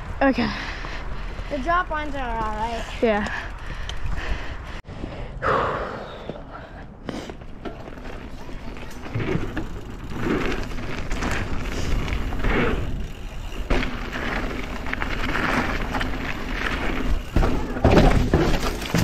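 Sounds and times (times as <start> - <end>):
bike tyres rumbling over dirt: 7.2 - 19.0
thuds and knocks on wooden ramps: 17.0 - 19.0.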